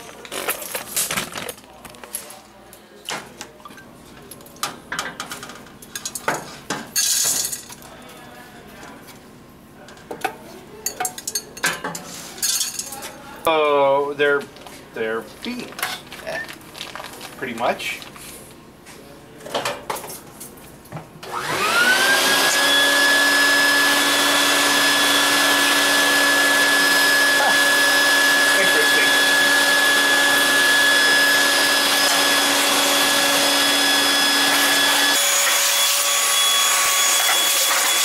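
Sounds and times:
shop vac motor whine: 21.2 - 38.0.

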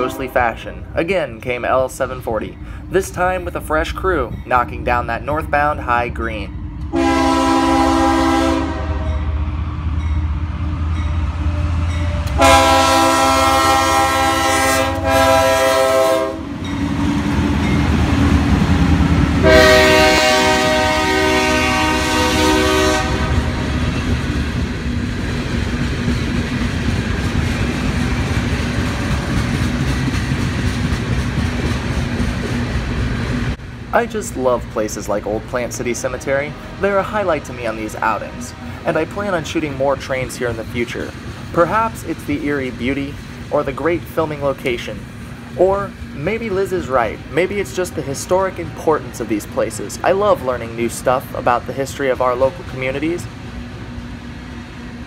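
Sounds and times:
locomotive air horn blasts: 0.0 - 0.4, 6.9 - 9.3, 12.3 - 16.5, 19.4 - 23.6
freight cars rumbling past: 16.4 - 55.0.

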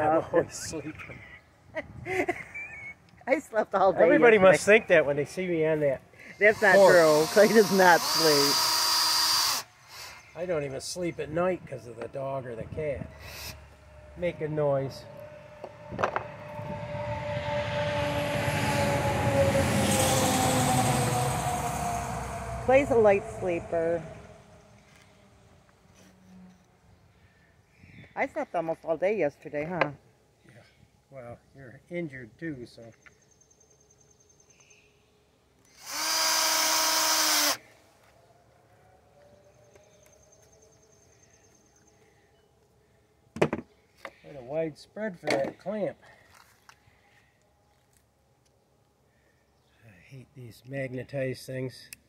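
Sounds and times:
cordless drill driving screw: 6.5 - 10.2, 35.7 - 37.6
motor vehicle passing with whine: 10.2 - 27.1.

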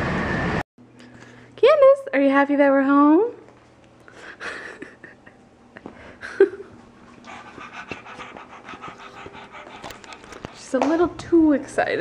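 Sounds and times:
dog panting: 6.6 - 11.0.

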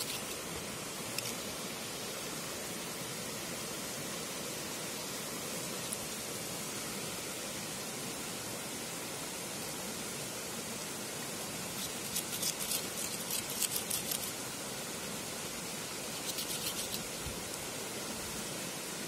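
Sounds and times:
knife scraping on stone: 0.0 - 0.4, 11.8 - 14.3, 16.1 - 17.2
stream rushing: 0.0 - 19.0.

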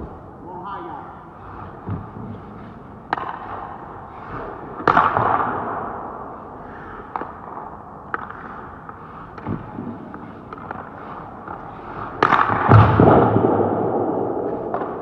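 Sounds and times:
skates scraping on ice: 1.4 - 13.6
goalie pads knocking on ice: 3.1 - 3.8, 4.8 - 5.8, 12.2 - 13.6.

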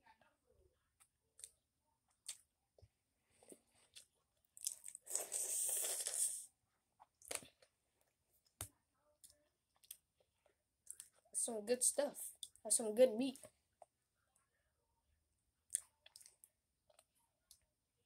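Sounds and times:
crunching and sucking: 3.8 - 6.5.

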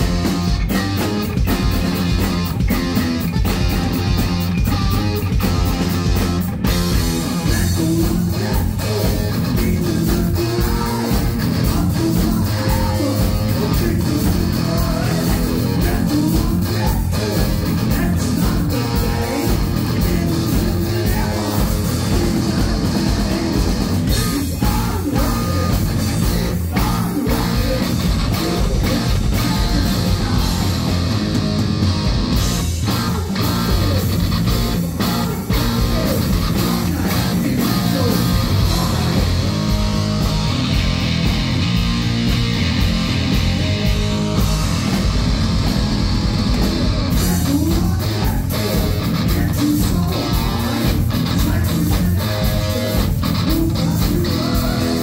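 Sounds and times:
distorted electric guitar: 0.0 - 55.0
drums: 0.0 - 55.0
man singing: 7.4 - 31.0, 32.9 - 40.5, 47.1 - 55.0.

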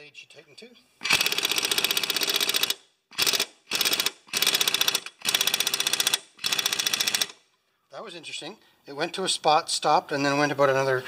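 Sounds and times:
air impact wrench hammering: 1.0 - 7.4.

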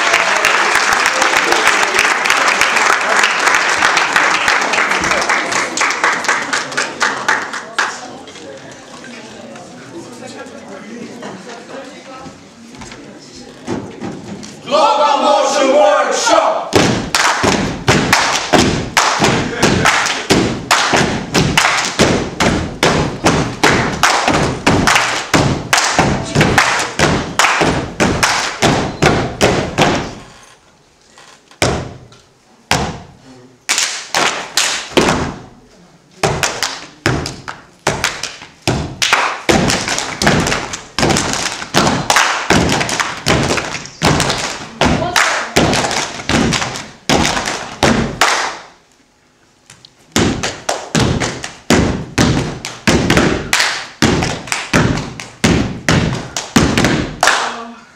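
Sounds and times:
hand claps: 0.0 - 7.9, 17.0 - 30.0, 33.7 - 35.1, 36.3 - 48.7, 50.2 - 57.6
rhythmic foot stomps: 16.7 - 30.2, 31.6 - 32.1, 32.7 - 35.5, 36.2 - 48.7, 49.7 - 57.5.

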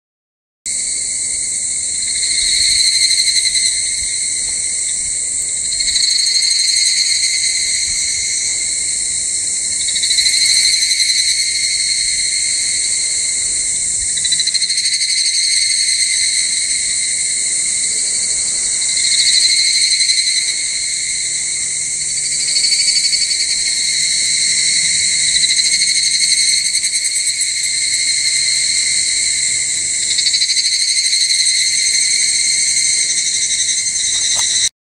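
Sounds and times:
cicadas singing: 0.7 - 34.7.

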